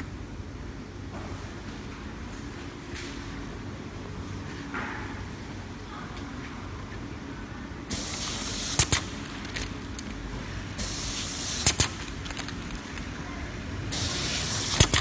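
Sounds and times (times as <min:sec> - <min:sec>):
low machine hum: 0:00.0 - 0:15.0
machine hiss: 0:07.9 - 0:09.2, 0:10.8 - 0:12.1, 0:13.9 - 0:15.0.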